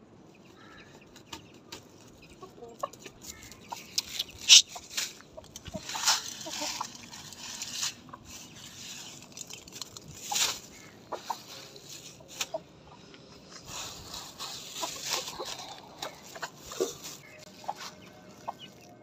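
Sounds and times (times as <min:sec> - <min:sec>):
chickens clucking: 0:00.3 - 0:19.0
rustling: 0:03.2 - 0:18.3.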